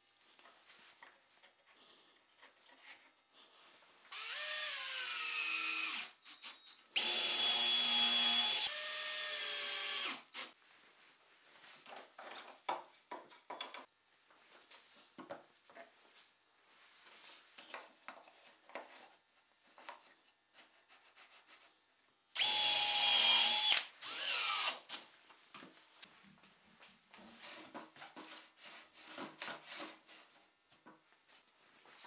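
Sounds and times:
cordless drill driving screws: 4.1s - 6.1s, 7.0s - 10.5s, 22.4s - 24.8s.

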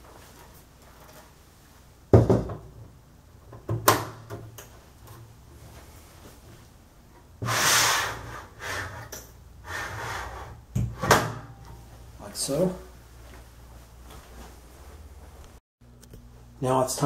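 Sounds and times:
metal beam scraping slide: 7.4s - 10.6s.

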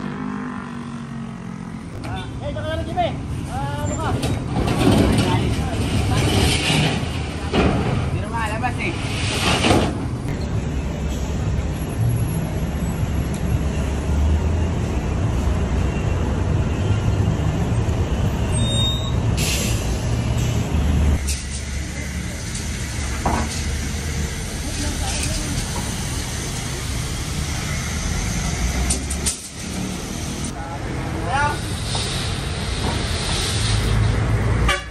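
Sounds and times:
traffic rumble: 0.0s - 34.9s
heavy diesel vehicle running: 9.3s - 34.8s
hiss: 31.6s - 34.2s.

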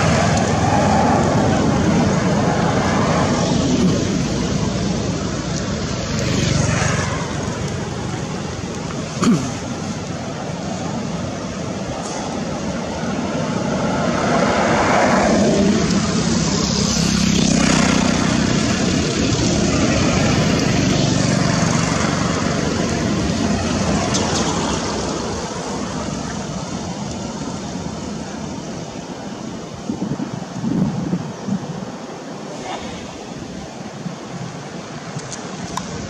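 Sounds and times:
engine passing: 0.0s - 28.0s.

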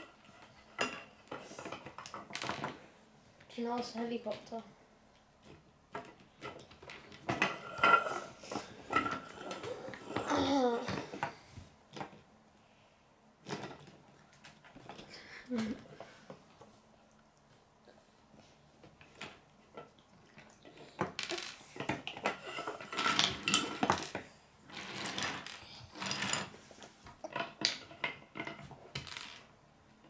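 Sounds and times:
plastic pieces clattering on table: 20.6s - 29.5s.

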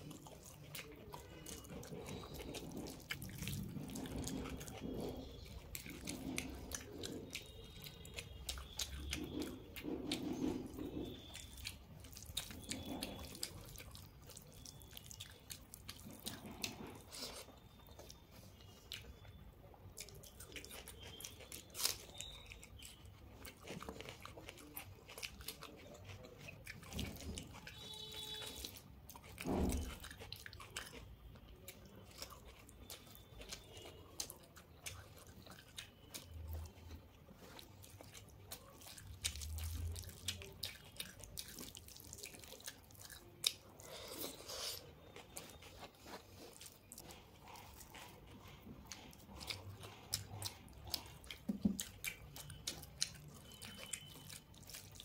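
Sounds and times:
chewing and lip smacks: 0.0s - 55.0s
food squished by hand: 23.5s - 55.0s.

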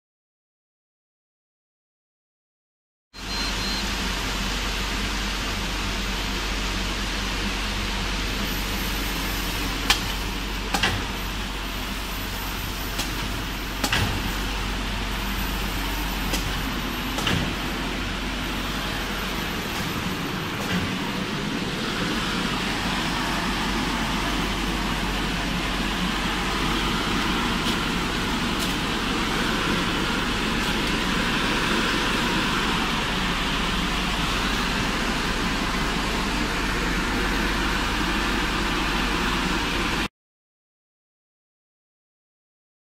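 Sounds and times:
shrink-wrapping machine running: 8.4s - 39.9s
sharp mechanical clacks: 13.0s - 14.3s, 16.3s - 17.6s.

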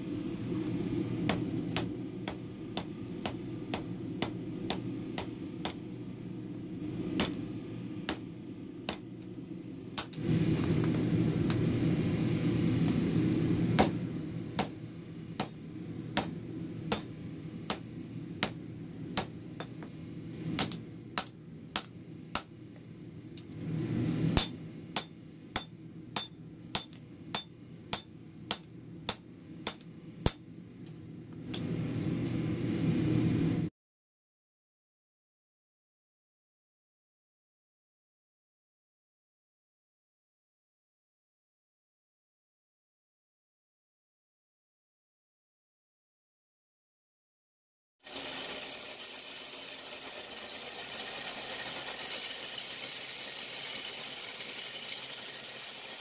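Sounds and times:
hammer striking hot steel on anvil: 1.2s - 5.9s, 7.2s - 9.3s, 10.0s - 10.2s, 13.8s - 19.9s, 20.5s - 22.7s, 24.3s - 30.6s.

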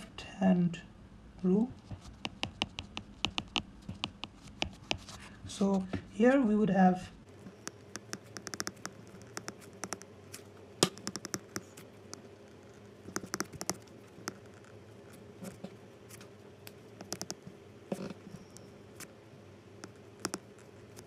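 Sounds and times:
faint steady hum: 0.0s - 21.0s
stylus tapping on tablet screen: 2.2s - 5.0s, 7.6s - 10.1s, 10.8s - 12.3s, 13.1s - 14.4s, 17.0s - 17.4s, 19.8s - 20.5s.

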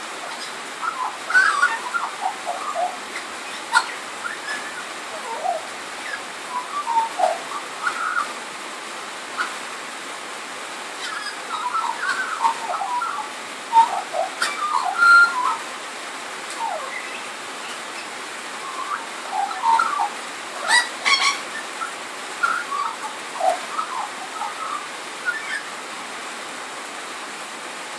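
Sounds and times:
rain on a tin roof: 0.0s - 27.9s
magpie warbling and whistling: 0.3s - 8.3s, 11.0s - 15.6s, 18.6s - 25.7s.

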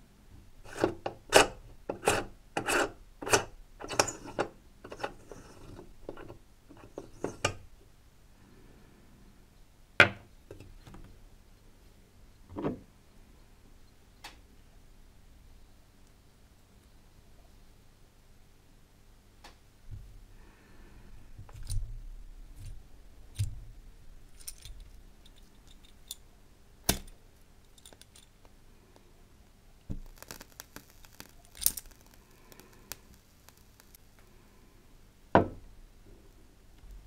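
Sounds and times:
lighter flint wheel crackly clicks: 30.0s - 34.0s.

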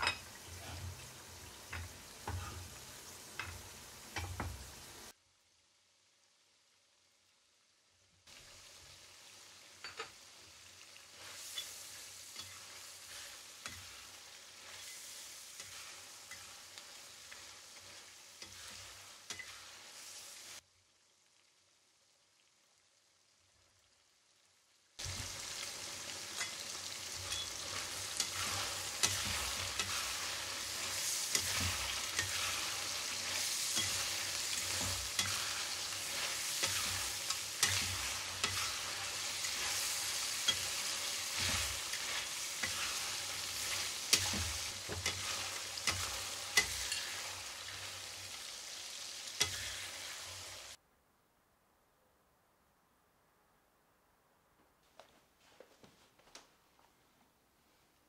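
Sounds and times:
metal spatula scraping a pan: 0.0s - 4.5s, 11.0s - 20.6s, 26.2s - 48.1s, 49.3s - 50.8s
food sizzling in a wok: 0.0s - 50.8s.

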